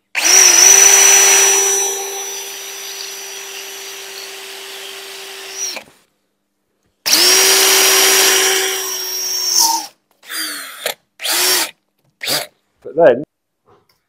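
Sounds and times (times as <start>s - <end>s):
battery drill boring into tile: 0.2s - 5.9s, 7.1s - 12.5s.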